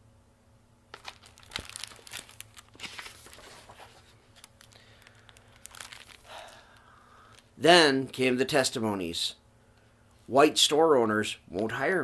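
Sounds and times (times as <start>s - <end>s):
book pages rustling and crinkling: 0.9s - 6.3s.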